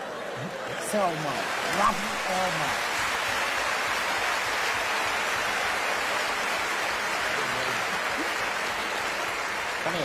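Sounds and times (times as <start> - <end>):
audience applauding: 0.0 - 10.0.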